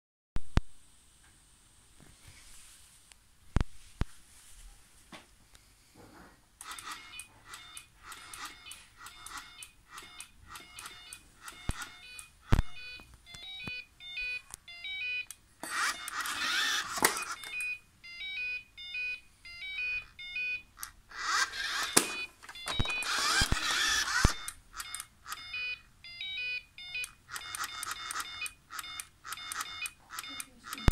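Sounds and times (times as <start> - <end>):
sharp clicks: 6.6 - 13.8, 20.8 - 25.5, 27.0 - 30.9
robot vacuum beeping alert tune: 24.9 - 30.9.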